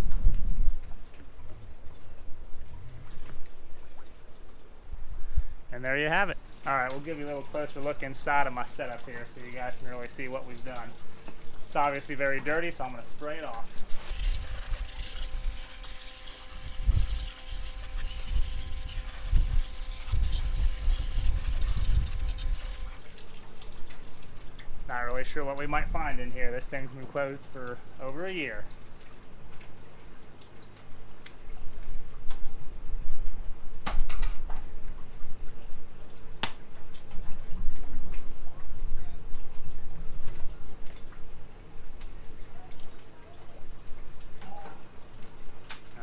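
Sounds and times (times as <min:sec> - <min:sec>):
hose spray nozzle hissing: 0:13.8 - 0:23.0
wind on microphone: 0:16.4 - 0:23.0.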